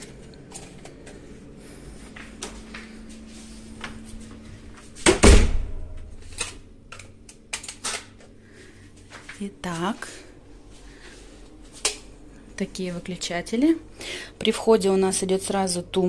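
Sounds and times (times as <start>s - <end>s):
wooden door thumping shut: 5.0s - 5.8s.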